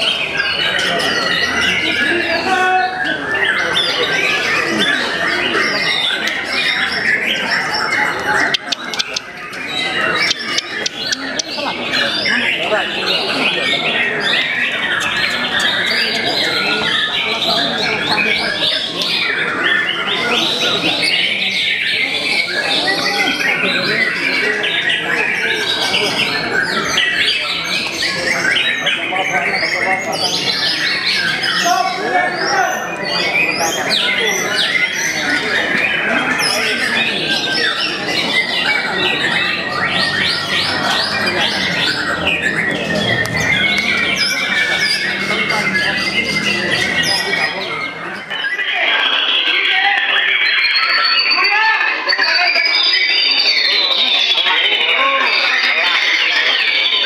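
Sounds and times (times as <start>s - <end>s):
birds singing in chorus: 0.0s - 57.0s.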